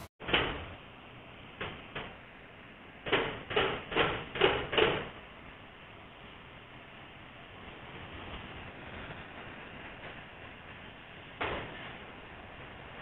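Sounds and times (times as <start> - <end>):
welding hiss: 0.0 - 13.0
knocks: 3.1 - 5.1.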